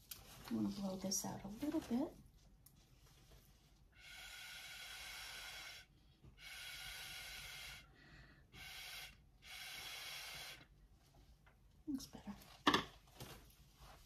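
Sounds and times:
breath blown through a straw: 0:03.9 - 0:10.7.

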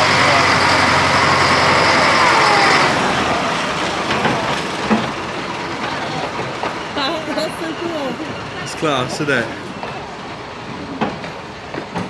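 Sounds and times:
diesel locomotive engine running: 0:00.0 - 0:12.0
train wheels clicking: 0:00.0 - 0:12.0.

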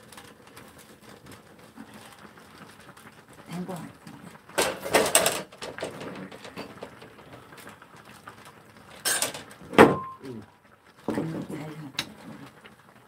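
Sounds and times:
clams popping in boiling pot: 0:00.0 - 0:13.0
metal pot lid clattering: 0:04.6 - 0:07.3, 0:08.9 - 0:10.2.

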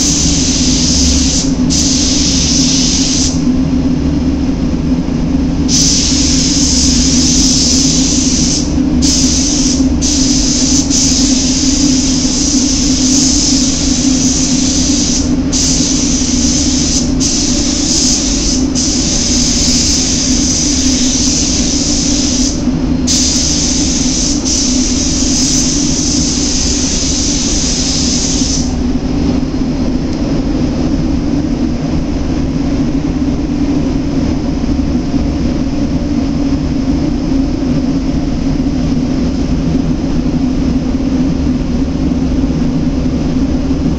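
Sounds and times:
paint spray gun hissing: 0:00.0 - 0:03.4, 0:05.7 - 0:28.8
ventilation hum: 0:00.0 - 0:43.9.

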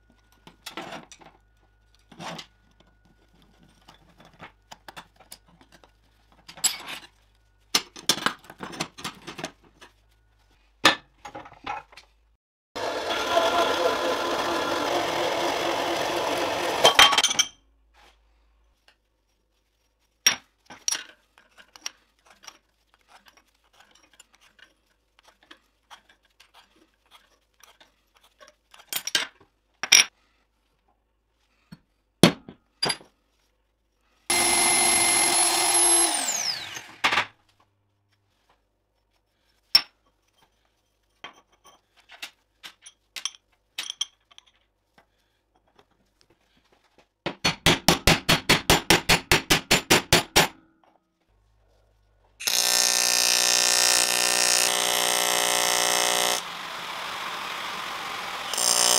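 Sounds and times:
power tool running: 0:12.8 - 0:17.0, 0:34.3 - 0:37.0, 0:52.4 - 0:58.9.

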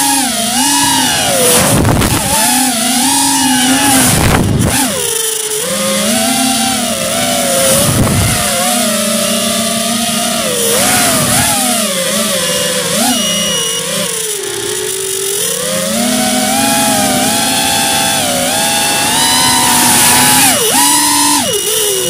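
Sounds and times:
model aircraft electric motor whine: 0:00.0 - 0:22.0.

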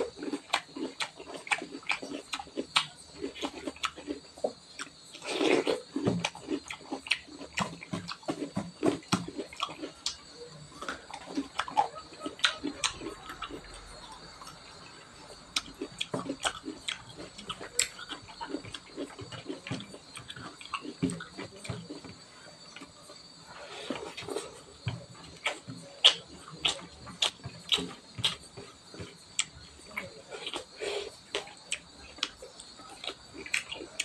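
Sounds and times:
chewing and mouth smacking: 0:00.0 - 0:34.0.

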